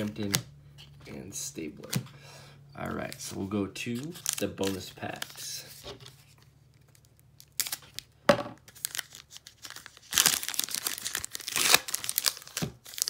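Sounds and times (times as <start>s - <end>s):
foil wrappers crinkling: 3.9s - 13.0s.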